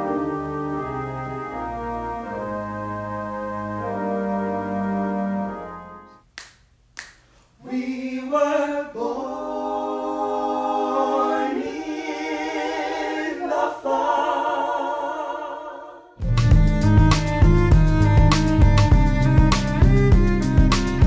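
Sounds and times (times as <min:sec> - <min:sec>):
organ chord: 0:00.0 - 0:06.2
finger snaps: 0:06.3 - 0:07.4
group singing a cappella: 0:07.6 - 0:16.2.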